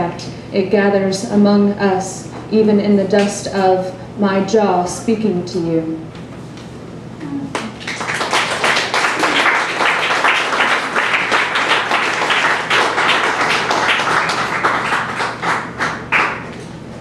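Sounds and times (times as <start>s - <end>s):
audience applauding: 7.5s - 16.6s.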